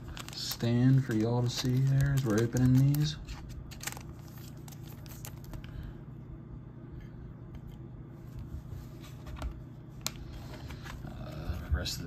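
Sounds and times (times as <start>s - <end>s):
trading cards clicking and rustling: 0.0s - 5.8s
steady low hum: 0.0s - 12.0s.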